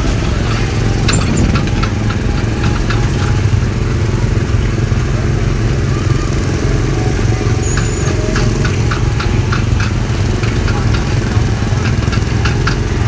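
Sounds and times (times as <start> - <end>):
light rattles: 0.0 - 5.4
small gasoline engine droning: 0.0 - 13.0.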